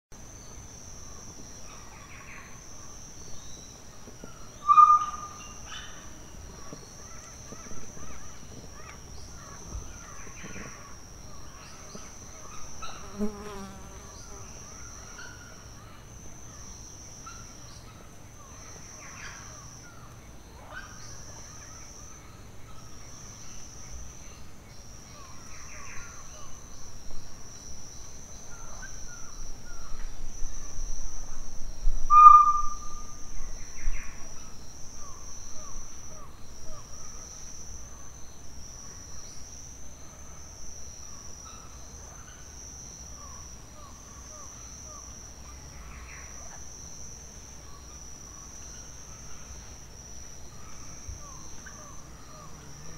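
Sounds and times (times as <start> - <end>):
high insect drone: 0.2 - 52.9
short bird calls: 4.6 - 5.9, 32.1 - 33.0.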